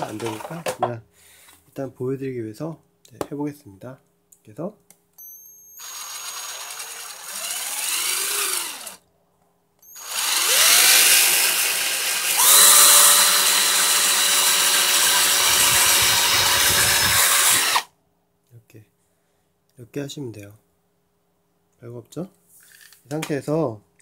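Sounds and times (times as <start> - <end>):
electric drill drilling into wood: 5.8 - 9.0, 9.9 - 17.9.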